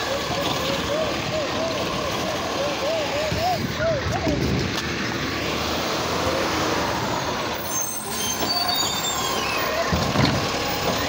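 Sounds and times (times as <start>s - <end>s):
garbage truck engine and hiss: 0.0s - 11.0s
faint high squeals: 7.6s - 10.0s.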